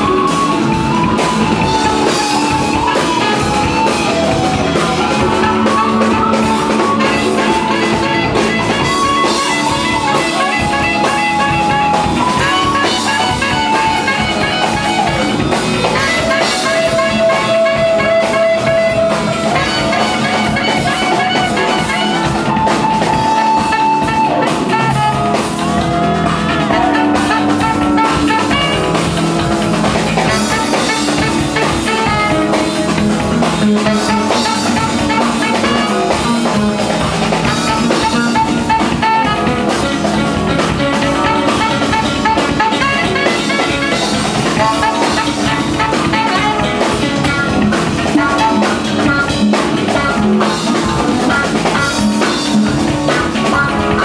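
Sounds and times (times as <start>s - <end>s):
live band playing: 0.0s - 54.0s.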